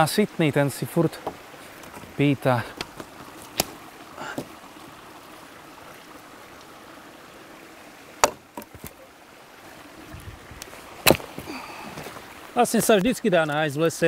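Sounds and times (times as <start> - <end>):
forest stream running: 0.0 - 14.0
dead branch snapping: 2.8 - 3.8, 10.6 - 11.4.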